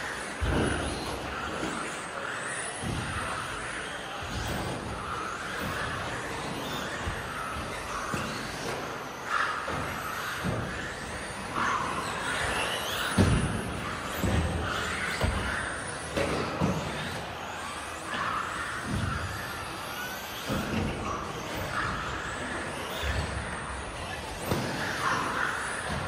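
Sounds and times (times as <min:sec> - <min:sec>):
rc car electric motor whine: 0:00.0 - 0:26.0.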